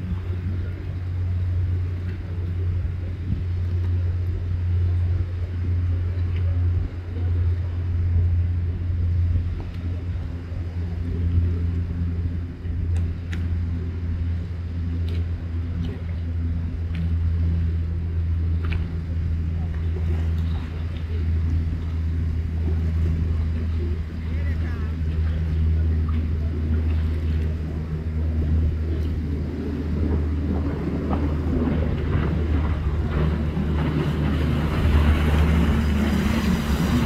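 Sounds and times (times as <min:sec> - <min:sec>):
boat engine droning: 0:00.0 - 0:37.0
faint clicks: 0:12.9 - 0:13.5.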